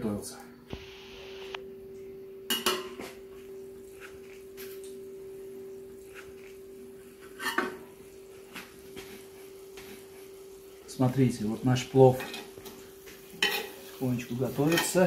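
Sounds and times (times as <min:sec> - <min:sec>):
faint steady hum: 0:00.0 - 0:14.8
cookware clinking and clattering: 0:02.5 - 0:03.2, 0:07.2 - 0:08.0, 0:12.1 - 0:15.0.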